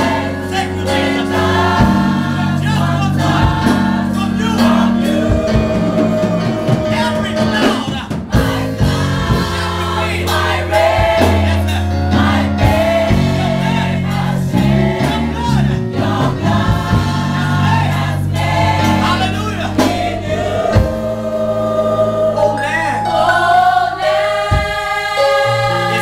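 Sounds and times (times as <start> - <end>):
gospel choir singing: 0.0 - 26.0
lead singer: 0.0 - 26.0.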